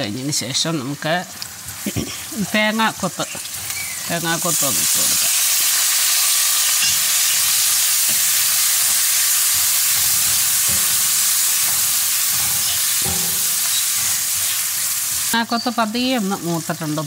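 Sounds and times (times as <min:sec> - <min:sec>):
food sizzling in hot oil: 0:00.0 - 0:17.0
spatula knocking against pan: 0:09.8 - 0:14.2.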